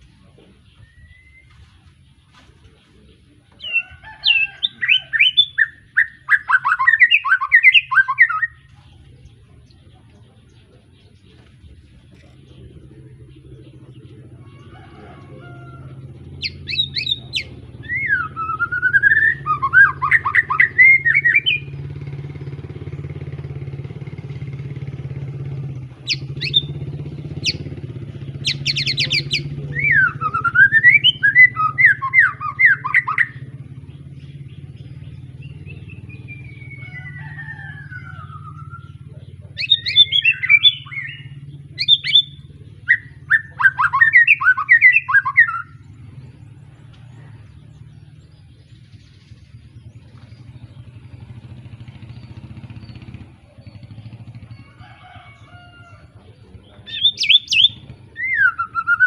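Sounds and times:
steady low hum: 0.0 - 54.8
bird singing whistled phrases: 0.8 - 1.5, 4.4 - 8.7, 16.4 - 21.7, 26.0 - 26.8, 27.4 - 27.7, 28.4 - 33.4, 35.4 - 37.1, 37.8 - 39.0, 39.6 - 45.8, 56.9 - 59.0.

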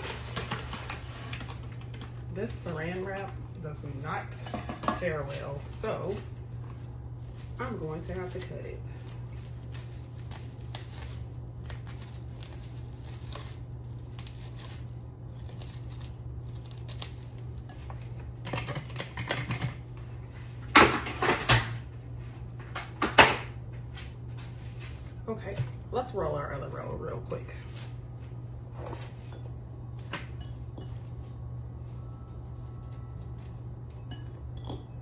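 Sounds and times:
steady low hum: 0.0 - 35.0
plastic wrap crinkling: 5.2 - 19.2.

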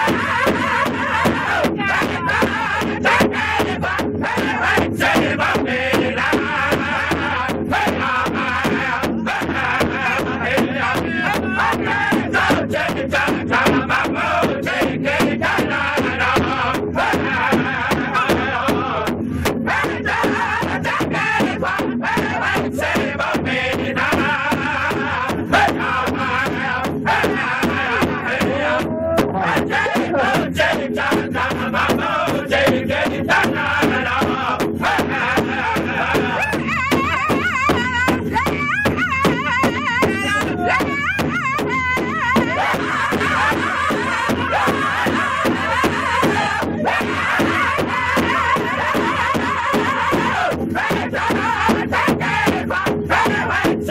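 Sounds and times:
group chanting loudly: 0.0 - 19.1, 19.7 - 36.6, 42.4 - 53.9
large hide drum beating: 0.0 - 53.9
high wavering voices: 36.2 - 50.0.

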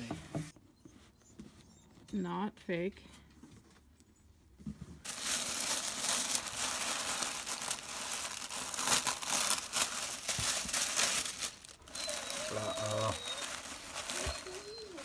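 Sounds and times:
tissue paper crinkling: 5.0 - 15.0.

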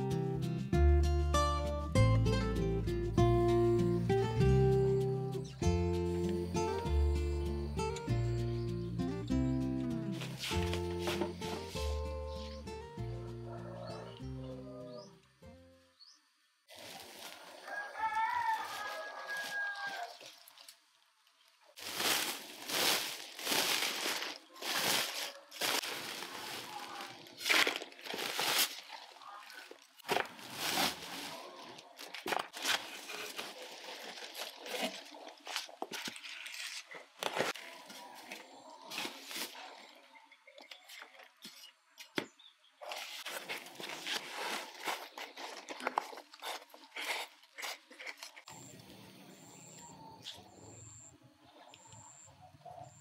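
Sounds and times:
soil crunching and rustling: 9.8 - 12.8, 16.7 - 40.1, 42.8 - 48.7
plastic sack crinkling: 16.7 - 38.3, 42.8 - 48.4.

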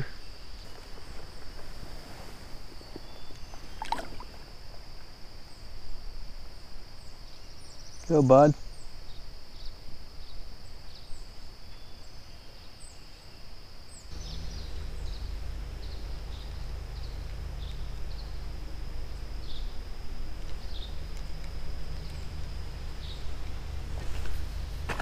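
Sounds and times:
high-pitched insect buzz: 2.5 - 25.0
low rumble: 14.1 - 25.0.

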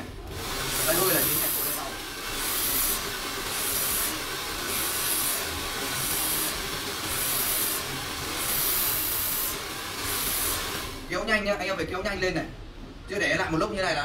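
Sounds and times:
hair dryer blowing: 0.0 - 11.1.

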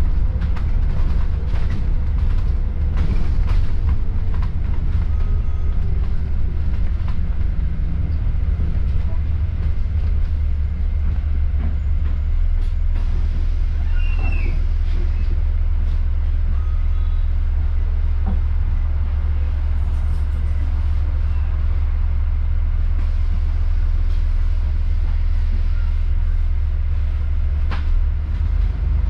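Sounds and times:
bus engine and road rumble: 0.0 - 29.0
brief high squeak: 13.8 - 14.6.

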